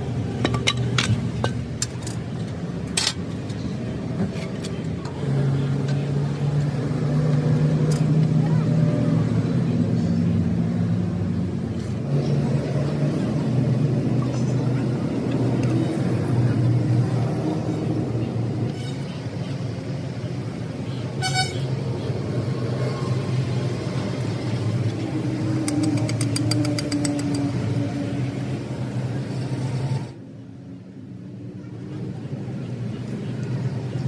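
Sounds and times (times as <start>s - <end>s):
vehicle engine droning: 0.0s - 34.0s
sharp clicks: 25.6s - 27.5s.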